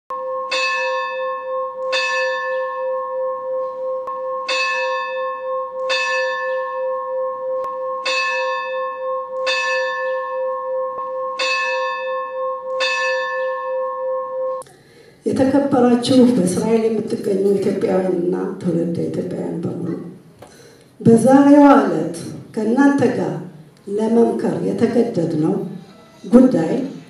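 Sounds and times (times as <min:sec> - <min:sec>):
church bell strikes: 0:00.1 - 0:14.6
deep bell hum: 0:00.1 - 0:15.1.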